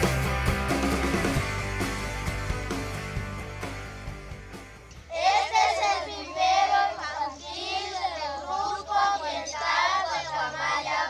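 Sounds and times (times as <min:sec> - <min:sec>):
children singing in unison: 0:05.1 - 0:11.0.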